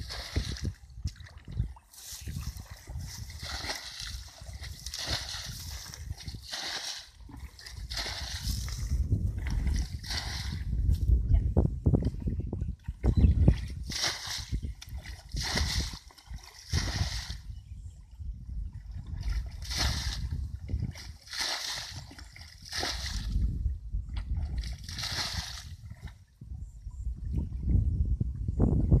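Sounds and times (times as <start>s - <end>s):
muddy water splashing pours: 0.0s - 10.8s, 12.8s - 17.5s, 18.7s - 23.5s, 24.2s - 26.2s.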